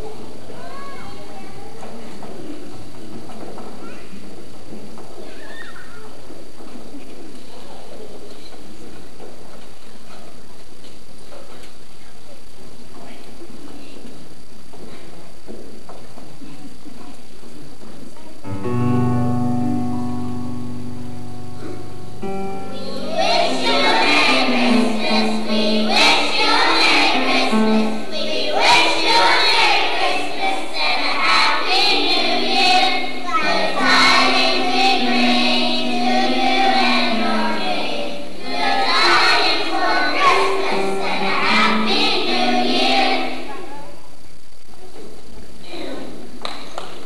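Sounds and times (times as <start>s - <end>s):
held instrumental chord: 18.5s - 30.0s
children's choir singing: 19.9s - 43.7s.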